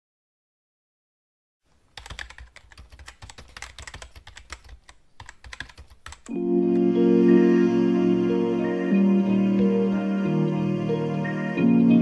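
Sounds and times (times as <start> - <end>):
typing on laptop keyboard: 1.9 - 6.4.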